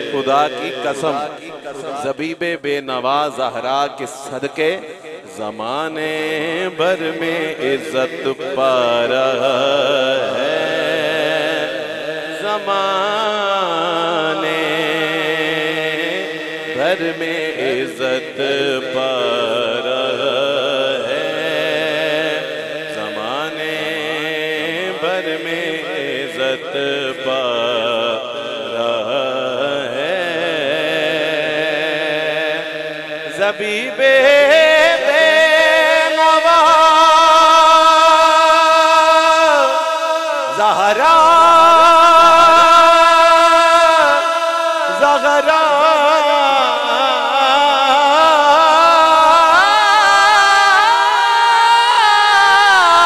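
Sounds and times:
man singing through sound system: 0.0s - 53.0s.

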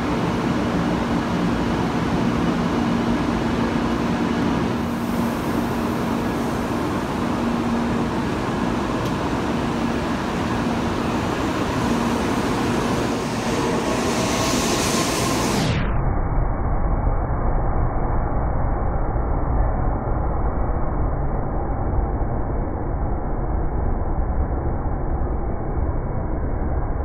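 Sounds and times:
high hiss of train speeding up: 0.0s - 15.9s
train hum and running noise: 0.0s - 16.0s
train doors closing: 4.8s - 15.6s.

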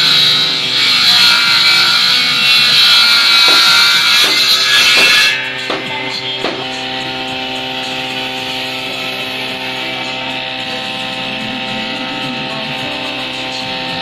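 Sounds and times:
table saw cutting wood: 0.0s - 14.0s
guitar music: 5.2s - 14.0s.

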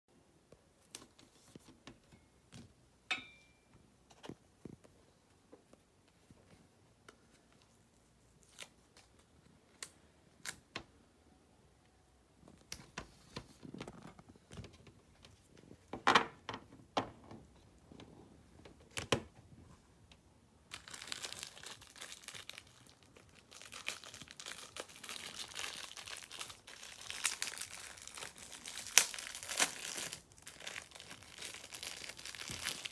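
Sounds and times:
crinkling handling noise: 12.4s - 16.7s, 20.7s - 32.9s.

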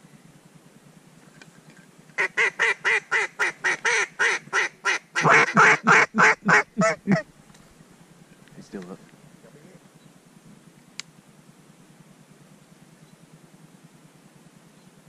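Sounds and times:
duck call quacks: 2.2s - 7.2s.

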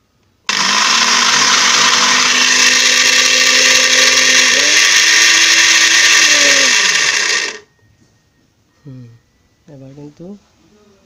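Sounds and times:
blender motor running: 0.5s - 7.7s.

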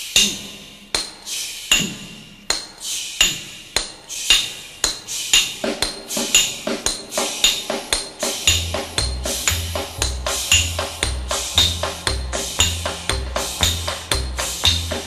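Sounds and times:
hammer striking steel: 0.1s - 15.0s.

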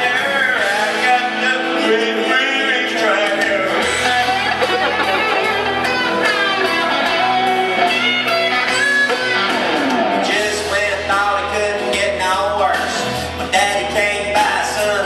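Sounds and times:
person singing: 0.0s - 5.9s, 10.1s - 15.0s
electric guitar strummed and picked: 0.0s - 15.0s.

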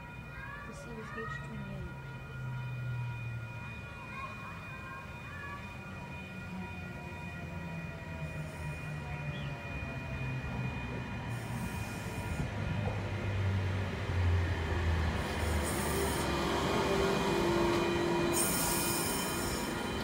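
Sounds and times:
electric train hum: 0.0s - 20.0s
train whine: 0.0s - 20.0s.

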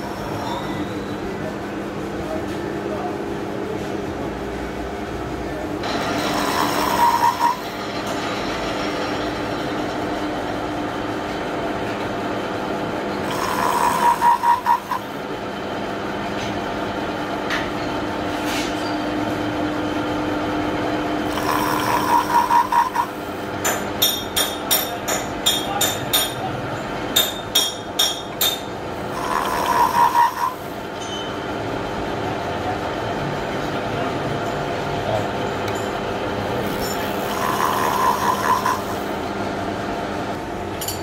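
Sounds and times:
milling machine humming: 0.0s - 41.0s
pulsing cutter cutting: 5.8s - 7.8s, 13.2s - 15.2s, 21.2s - 23.8s, 28.0s - 30.8s, 36.5s - 39.2s.

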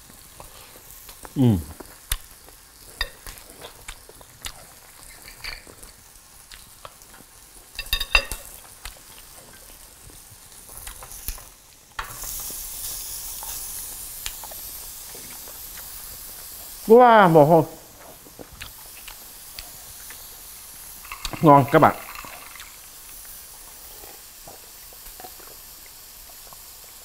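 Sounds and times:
meat sizzling on grill plate: 0.0s - 27.0s
short falling vocal sound: 1.4s - 1.8s
utensils tapping against plate: 3.0s - 3.8s, 5.0s - 5.8s, 7.7s - 8.6s.

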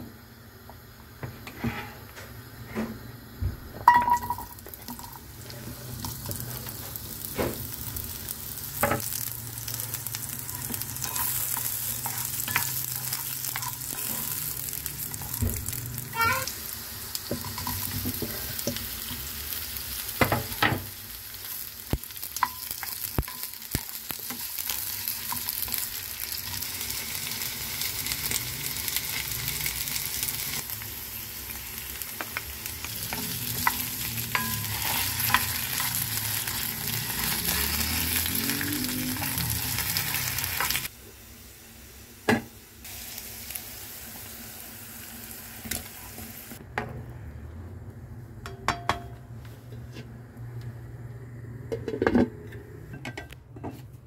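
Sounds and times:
vegetables sizzling in oil: 0.1s - 46.6s
spatula tapping a pan: 48.4s - 49.2s.

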